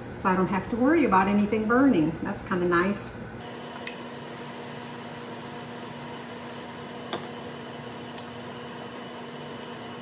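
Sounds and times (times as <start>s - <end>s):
oil sprayer hissing: 4.3s - 6.7s.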